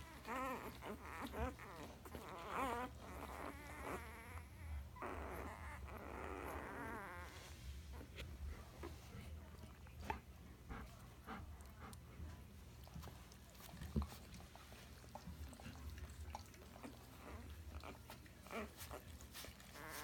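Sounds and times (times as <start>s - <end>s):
puppies suckling: 0.0s - 20.0s
puppy squeaks: 0.1s - 7.4s, 18.5s - 20.0s.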